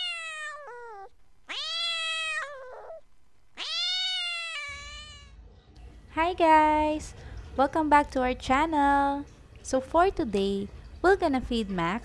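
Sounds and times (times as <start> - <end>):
cat meowing: 0.0 - 3.0, 3.6 - 5.4.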